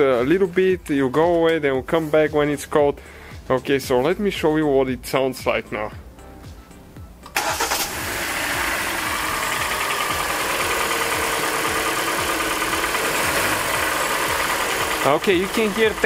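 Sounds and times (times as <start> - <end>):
car engine starting and idling: 7.2 - 16.0
engine ticking knock: 8.8 - 16.0.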